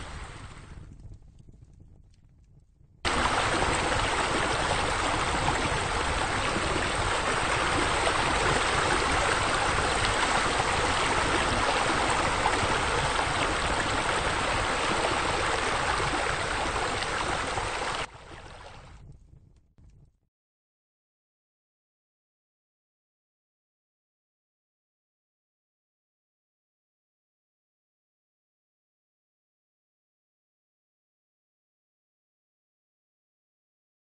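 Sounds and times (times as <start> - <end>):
fountain water splashing: 0.0 - 0.5, 3.1 - 18.6.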